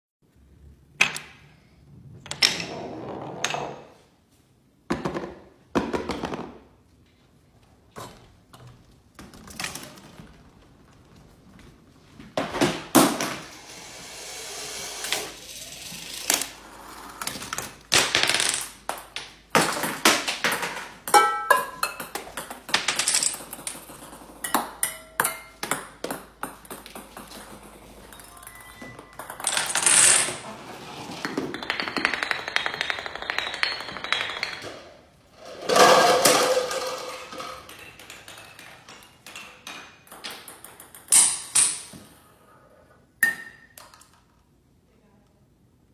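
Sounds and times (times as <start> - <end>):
balls knocking and clattering: 0.8 - 4.1, 4.8 - 7.2, 14.6 - 42.3, 43.0 - 44.6.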